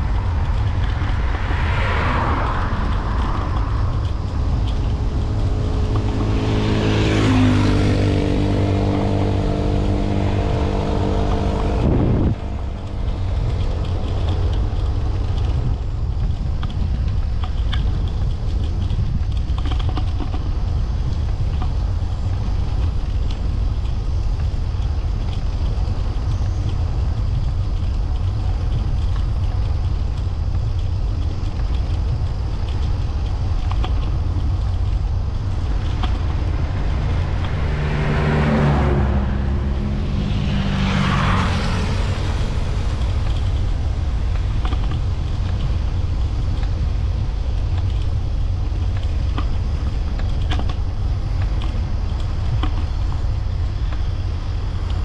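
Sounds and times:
vehicle passing: 0.0s - 16.3s, 34.0s - 47.3s
wind and riding noise: 0.0s - 55.0s.

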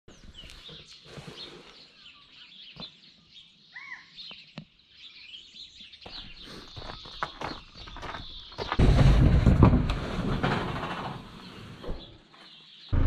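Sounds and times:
small birds chirping: 0.1s - 8.8s, 11.2s - 13.0s
arched bird call: 3.7s - 4.2s.

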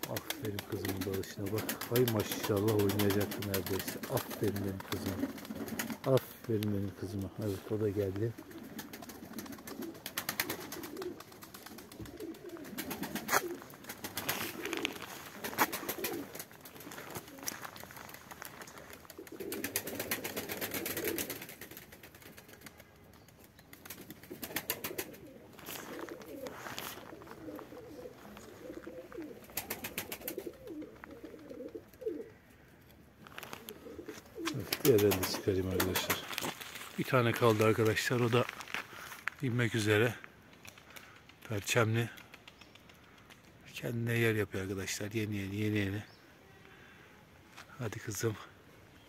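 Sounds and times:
pigeons cooing: 0.0s - 22.8s, 23.8s - 36.3s
wings flapping: 0.0s - 32.3s, 33.2s - 39.3s, 39.9s - 43.7s.

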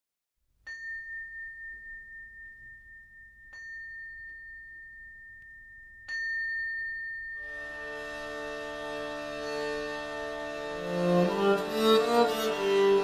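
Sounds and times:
high bell-like chime: 0.6s - 8.6s.

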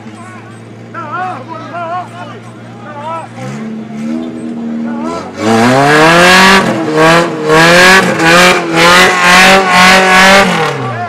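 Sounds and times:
engine revving hard: 3.3s - 11.0s.

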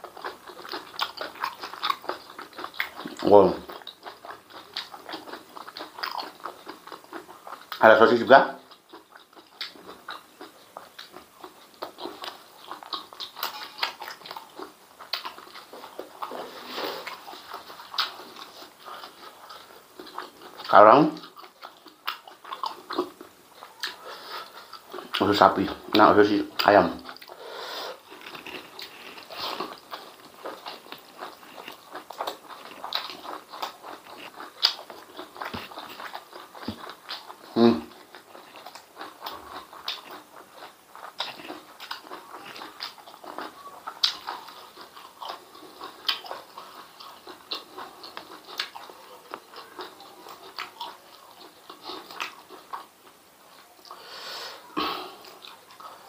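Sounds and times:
wet chewing: 0.0s - 56.0s
lip smacks and mouth clicks: 8.7s - 24.0s, 28.2s - 53.2s.

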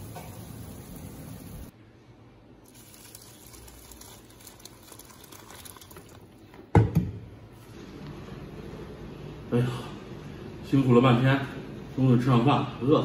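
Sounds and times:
noodles boiling in pot: 0.0s - 1.7s, 2.6s - 6.7s
broth splashing into steel bowl: 2.7s - 6.3s.

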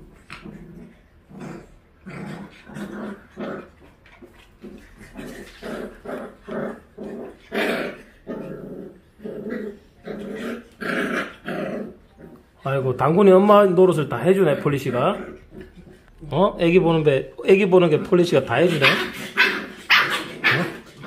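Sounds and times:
dogs play growling: 0.0s - 12.6s, 14.1s - 16.3s, 17.9s - 21.0s.

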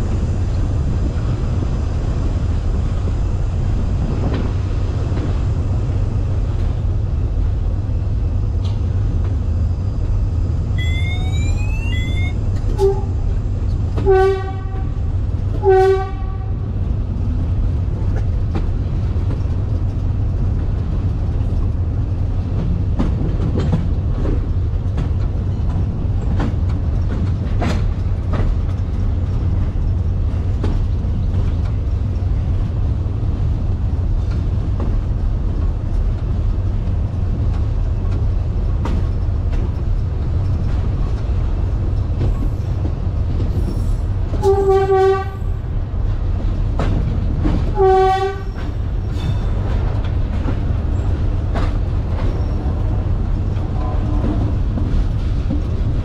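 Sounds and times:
locomotive rumbling: 0.0s - 56.0s
locomotive horn blasts: 10.8s - 13.1s, 14.0s - 15.0s, 15.6s - 16.6s, 44.4s - 45.5s, 47.8s - 48.5s.

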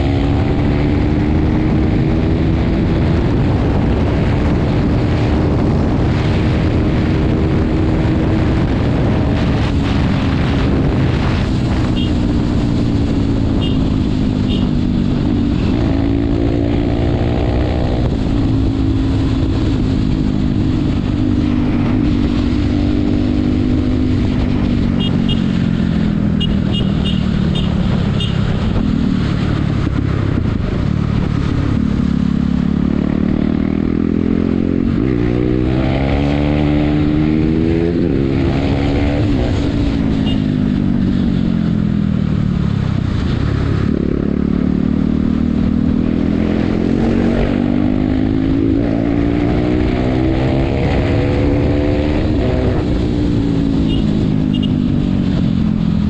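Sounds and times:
wind rushing: 0.0s - 42.1s
motorcycle engine revving: 0.0s - 56.0s.

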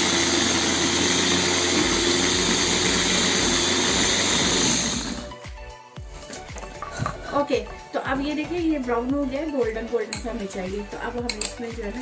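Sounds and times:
food chopper motor grinding: 0.0s - 5.3s.

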